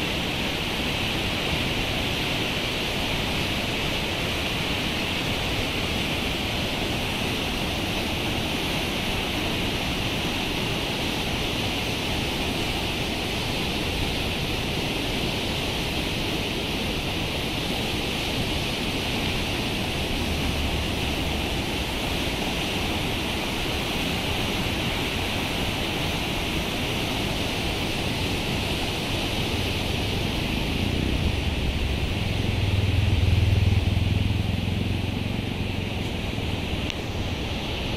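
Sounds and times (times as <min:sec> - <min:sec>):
river rushing over rapids: 0:00.0 - 0:37.9
low rumble: 0:30.1 - 0:36.9.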